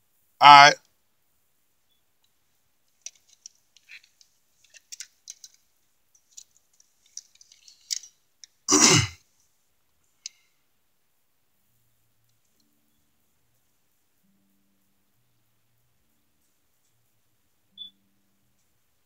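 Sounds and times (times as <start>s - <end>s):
faint clicks and rustles: 1.8s - 10.6s
man clearing throat: 8.7s - 9.2s.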